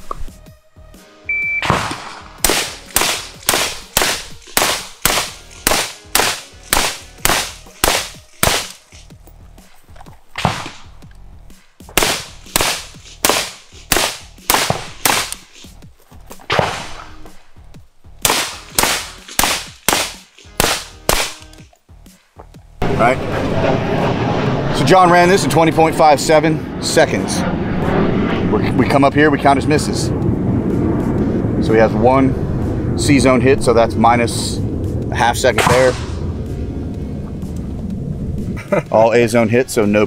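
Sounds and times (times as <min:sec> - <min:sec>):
rapid gunshots: 0:01.6 - 0:08.8, 0:10.4 - 0:10.9, 0:12.0 - 0:15.6, 0:18.2 - 0:21.4.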